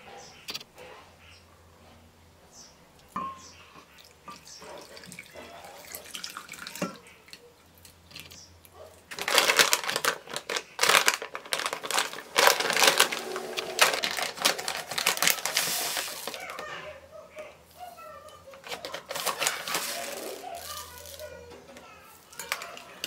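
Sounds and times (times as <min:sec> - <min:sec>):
water pouring into glass bowl: 0:04.0 - 0:07.0
plastic bag crinkling: 0:09.1 - 0:16.7, 0:17.9 - 0:21.4, 0:22.3 - 0:23.0.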